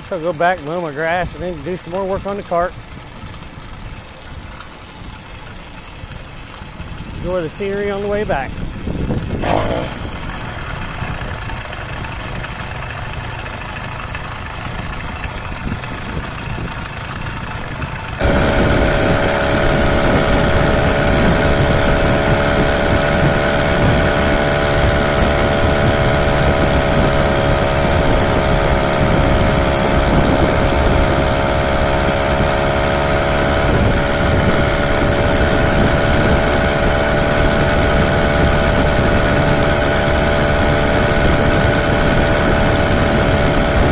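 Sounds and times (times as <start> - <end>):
two-stroke engine running: 0.0 - 43.9
wind rush: 8.1 - 12.6, 17.6 - 43.9.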